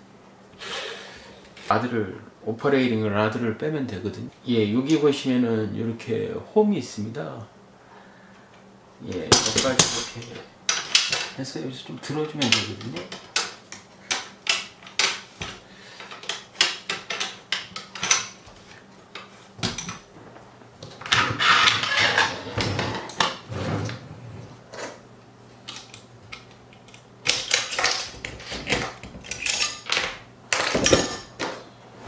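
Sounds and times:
rifle parts clicking and rattling: 0:12.3 - 0:18.5.

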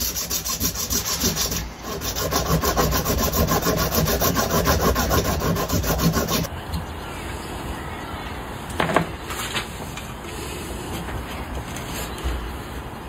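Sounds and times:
rapid rasping scrape: 0:00.0 - 0:06.5.

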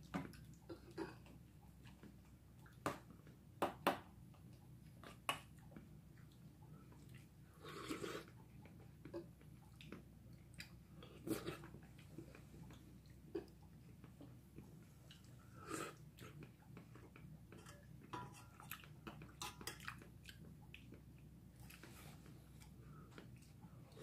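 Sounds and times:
quiet chewing: 0:00.0 - 0:03.4, 0:04.3 - 0:24.0
metal spoon clinking on bowls: 0:17.6 - 0:18.6.

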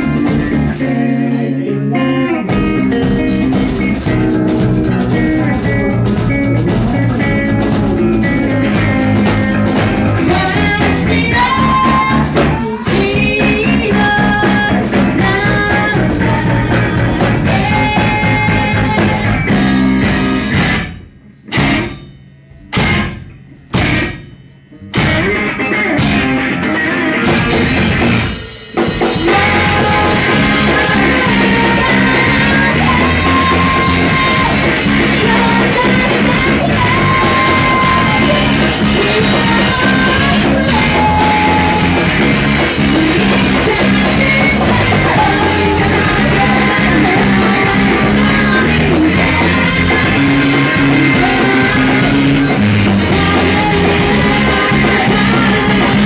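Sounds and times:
rock band playing: 0:00.0 - 0:56.0
woman singing: 0:06.8 - 0:19.6, 0:29.2 - 0:56.0.

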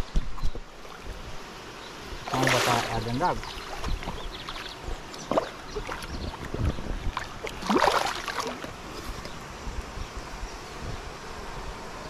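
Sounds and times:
fish thrashing water splashing: 0:02.3 - 0:06.1, 0:07.1 - 0:08.7.

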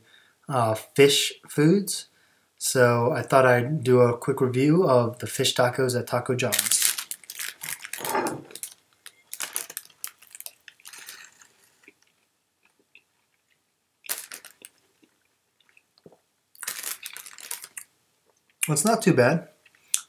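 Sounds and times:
paper wrapper crinkling: 0:06.5 - 0:11.9, 0:14.1 - 0:14.8, 0:16.6 - 0:17.9
crunching while chewing food: 0:06.8 - 0:18.5.

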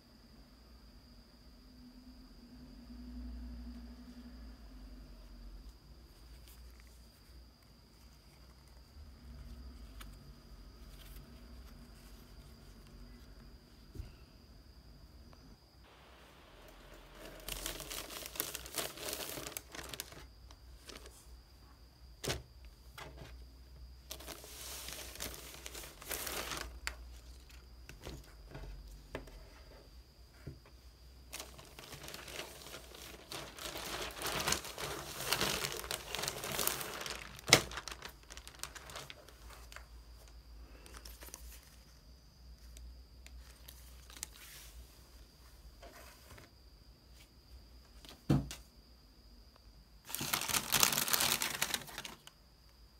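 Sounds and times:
plastic bag crinkling: 0:16.8 - 0:21.2, 0:24.1 - 0:27.5, 0:31.3 - 0:39.9, 0:50.1 - 0:52.3.

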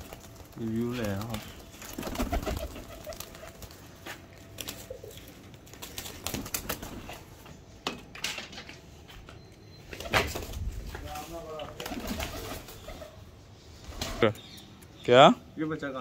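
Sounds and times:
faint pigeon coo: 0:00.0 - 0:05.5, 0:11.6 - 0:13.4
pigeon wings flapping: 0:00.0 - 0:07.2, 0:11.8 - 0:13.0.

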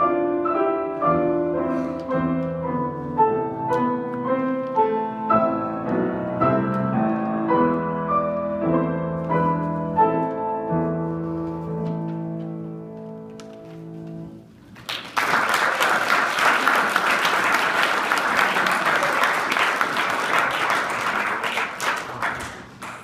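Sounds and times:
applause: 0:14.7 - 0:23.0.

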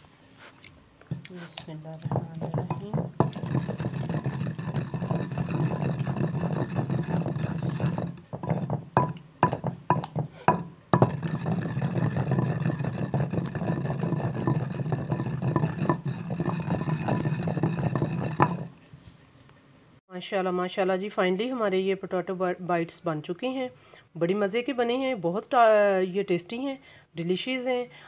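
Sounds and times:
spoon scraping in a bowl: 0:01.2 - 0:18.7.

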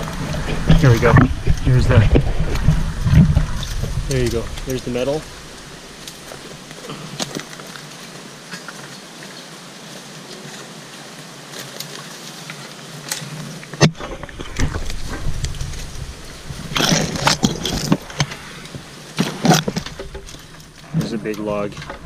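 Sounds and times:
low handling rumble: 0:00.0 - 0:06.8, 0:14.2 - 0:19.0
brush snapping and crackling: 0:00.0 - 0:22.0
footsteps in bush: 0:00.0 - 0:22.0.

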